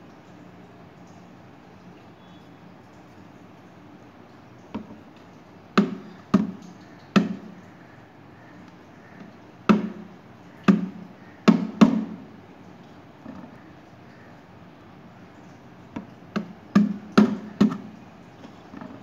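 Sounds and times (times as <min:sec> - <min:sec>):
sharp hard knocks: 0:05.8 - 0:07.5, 0:09.7 - 0:12.2, 0:16.3 - 0:18.0.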